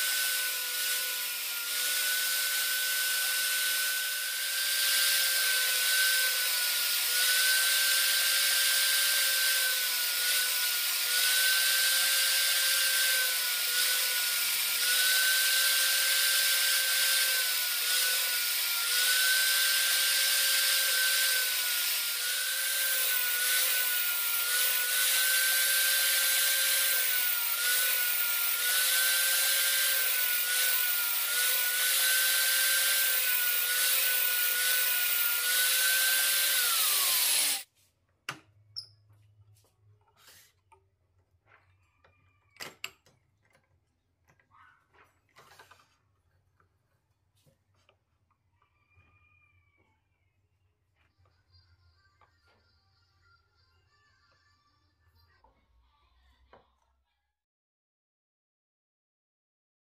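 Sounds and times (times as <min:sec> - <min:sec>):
angle grinder whining: 0:00.0 - 0:37.7
angle grinder winding down: 0:00.0 - 0:37.7.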